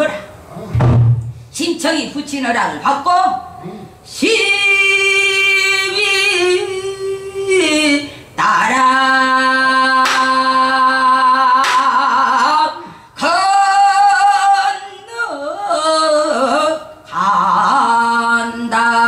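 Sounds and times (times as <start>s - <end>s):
sharp knock: 0.7s - 1.4s
woman singing unaccompanied: 4.1s - 19.0s.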